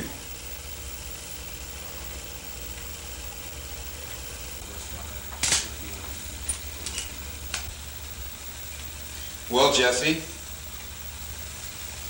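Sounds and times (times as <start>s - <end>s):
low hum: 0.0s - 12.0s
sharp click: 5.3s - 5.7s.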